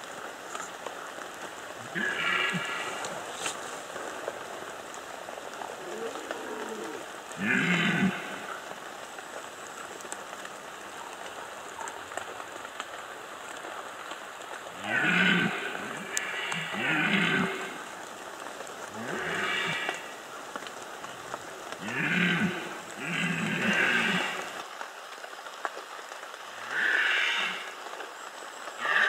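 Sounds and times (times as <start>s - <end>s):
steady hiss: 0.0s - 29.0s
deer stags roaring: 1.8s - 3.2s, 5.9s - 8.5s, 14.8s - 17.9s, 18.9s - 20.1s, 21.8s - 24.6s, 26.6s - 27.7s, 28.8s - 29.0s.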